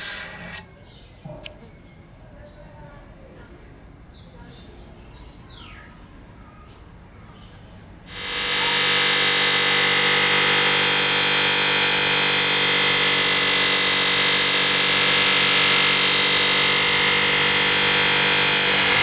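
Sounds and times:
electric motor hum: 8.1 - 19.0
polishing wheel hissing on blade: 8.1 - 19.0.

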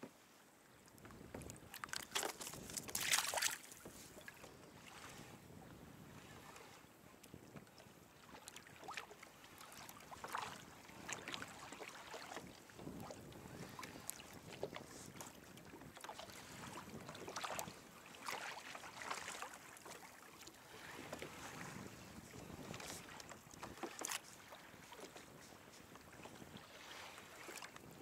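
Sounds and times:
waves lapping against kayak hull: 0.0 - 28.0
wind on microphone: 12.3 - 18.0, 20.7 - 24.0, 24.7 - 28.0.

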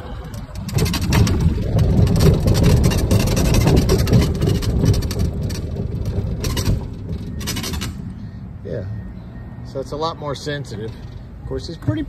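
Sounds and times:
crunching and rattling clicks: 0.0 - 8.2
tyres rumbling on gravel: 0.0 - 8.8.

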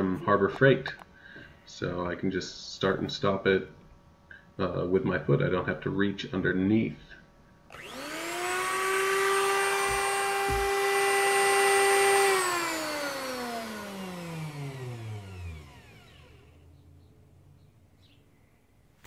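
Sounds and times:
router motor whine: 7.7 - 16.7.

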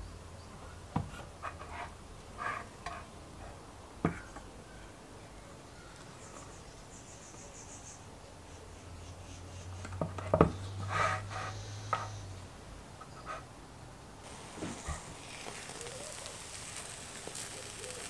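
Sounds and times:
soft handling sounds: 14.3 - 18.0.

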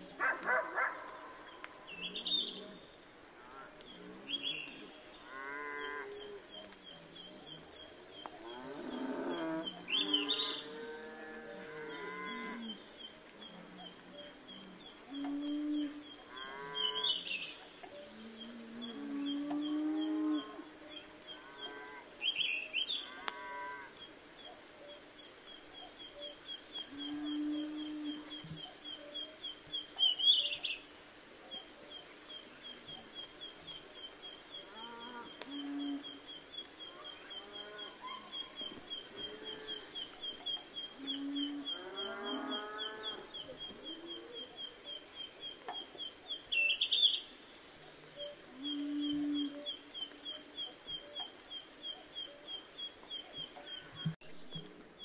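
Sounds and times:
low drawn-out animal calls: 41.0 - 44.5.

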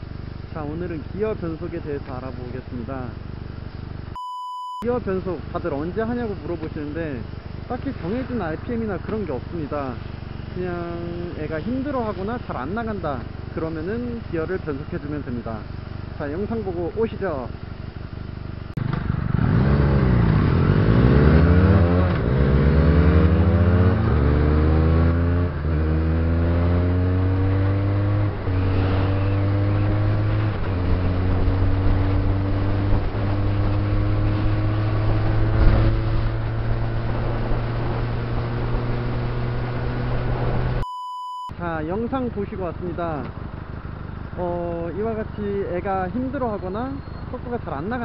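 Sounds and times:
motorcycle engine accelerating: 17.4 - 40.8.

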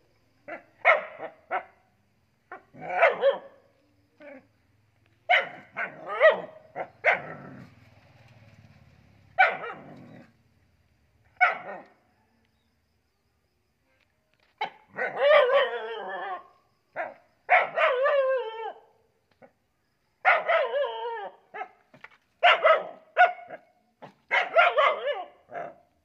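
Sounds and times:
young dog barking: 0.5 - 1.8, 2.5 - 3.6, 5.3 - 7.4, 9.4 - 10.0, 11.4 - 12.0, 14.6 - 16.4, 17.0 - 18.8, 20.2 - 21.8, 22.4 - 25.8.

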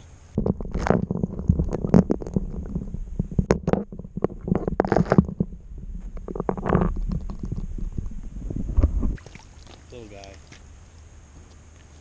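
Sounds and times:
low underwater rumbling: 0.4 - 9.9.

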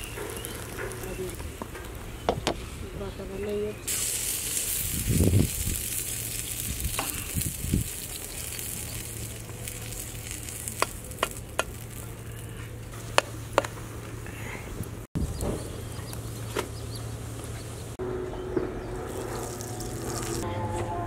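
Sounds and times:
pancake sizzling on a griddle: 0.0 - 1.4, 3.9 - 12.8, 19.1 - 20.4.

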